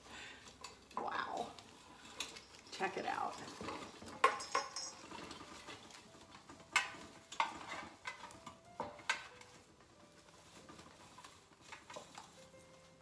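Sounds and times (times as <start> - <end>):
ribbon rustling: 0.0 - 13.0
light clicks and clinks: 0.4 - 5.5.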